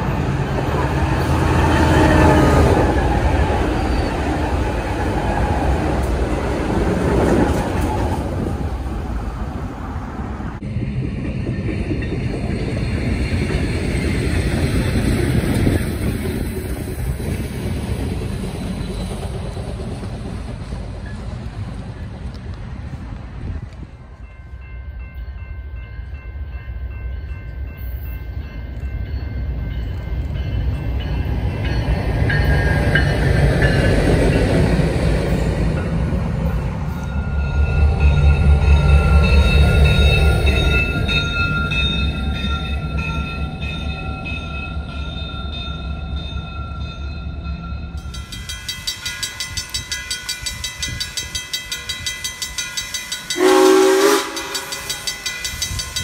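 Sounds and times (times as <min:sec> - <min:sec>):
diesel locomotive engine rumble: 0:00.0 - 0:56.0
steam locomotive rhythmic chuffing: 0:10.6 - 0:56.0
steam whistle blast: 0:53.3 - 0:55.2.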